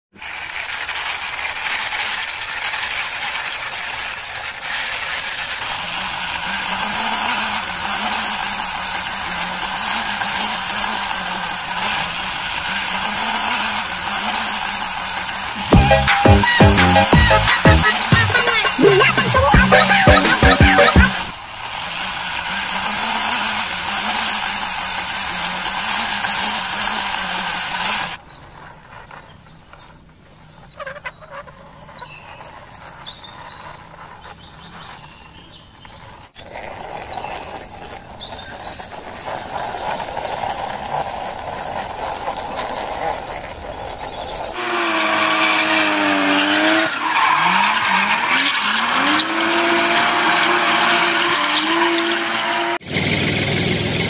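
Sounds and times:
vehicle engine running and revving: 0:03.7 - 0:28.2, 0:43.7 - 0:54.0.

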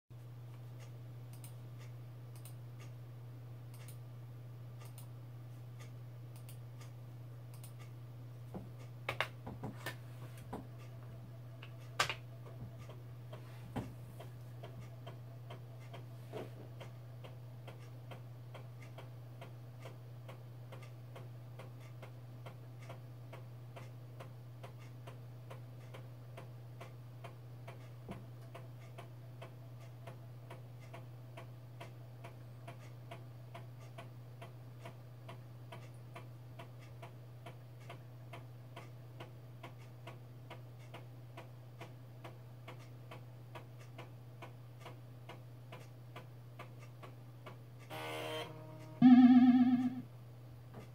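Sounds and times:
low hum: 0:48.5 - 0:50.1.

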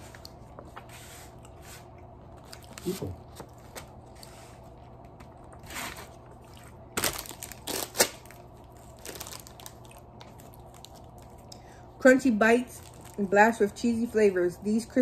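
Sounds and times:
plastic bag rustling: 0:07.0 - 0:11.4, 0:12.6 - 0:13.6.

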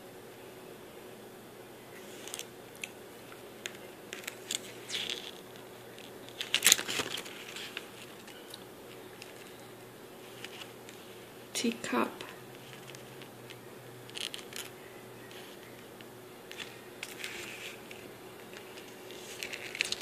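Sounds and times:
paper rustling: 0:03.6 - 0:11.2, 0:12.5 - 0:20.0.

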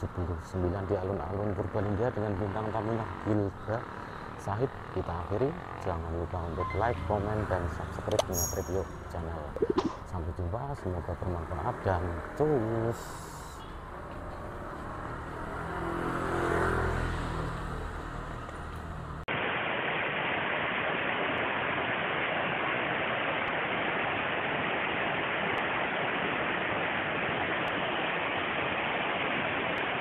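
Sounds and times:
motorbike passing by: 0:00.8 - 0:08.1, 0:10.8 - 0:19.3.

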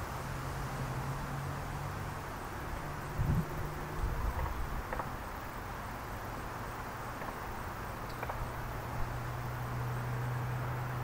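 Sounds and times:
low engine hum: 0:00.0 - 0:11.0
steady hiss: 0:00.0 - 0:11.0.

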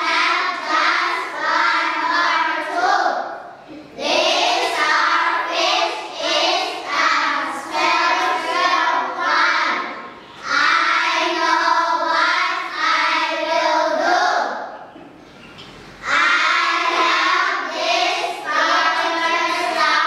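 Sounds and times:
children singing: 0:00.0 - 0:14.9, 0:16.0 - 0:20.0.

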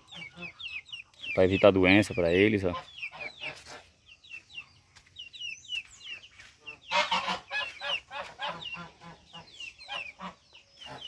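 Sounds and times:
chicks peeping: 0:00.0 - 0:11.0
fowl rapid calls: 0:06.8 - 0:11.0.

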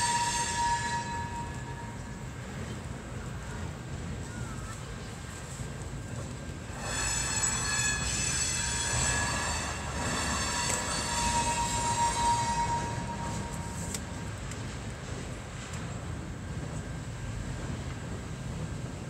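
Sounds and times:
high-pitched squeal: 0:06.8 - 0:14.2.

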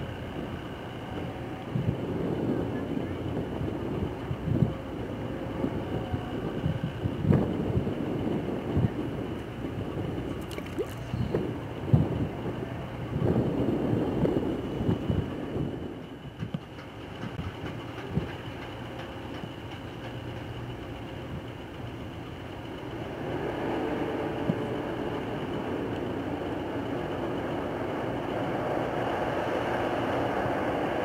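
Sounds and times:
ship engine rumble: 0:00.0 - 0:31.0
bow wave wash: 0:01.8 - 0:16.2.

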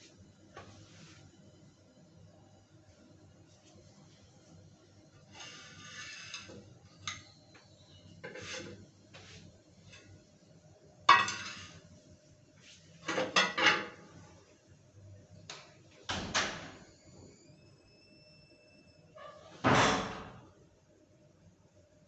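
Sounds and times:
metal utensils and pots clattering: 0:05.4 - 0:07.3, 0:11.1 - 0:11.8, 0:13.0 - 0:14.1.

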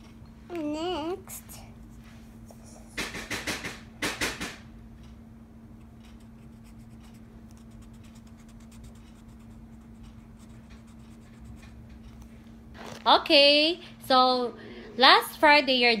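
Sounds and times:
steady low hum: 0:00.0 - 0:16.0
marker scratching on paper: 0:06.1 - 0:11.8.

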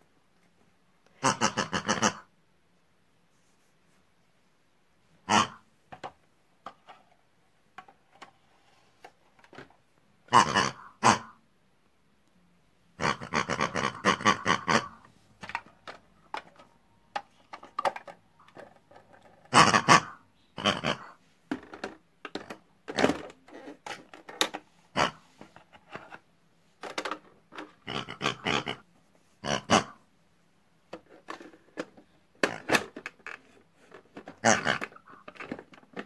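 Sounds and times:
pig-like grunts and squeals: 0:01.2 - 0:02.3, 0:05.2 - 0:05.6, 0:10.3 - 0:11.4, 0:13.0 - 0:15.0, 0:19.5 - 0:21.2, 0:24.9 - 0:25.3, 0:27.8 - 0:28.8, 0:29.4 - 0:30.0, 0:34.4 - 0:35.4.

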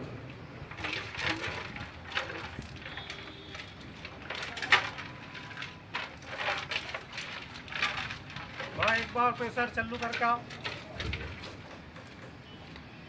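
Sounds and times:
water sloshing in metal tank: 0:00.7 - 0:11.7
water splashing onto ground: 0:00.7 - 0:11.7.

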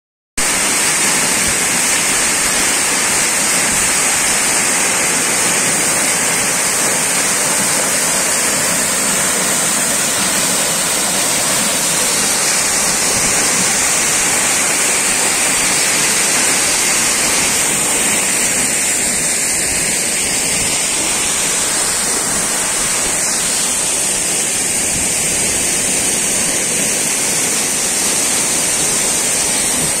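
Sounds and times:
waterfall rushing: 0:00.4 - 0:30.0.

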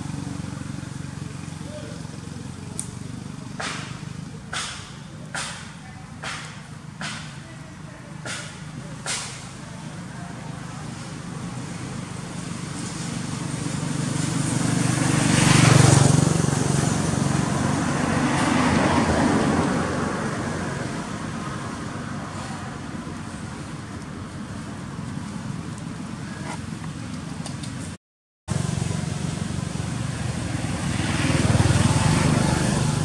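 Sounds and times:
vehicle engine driving past: 0:10.2 - 0:25.0, 0:28.5 - 0:33.0.

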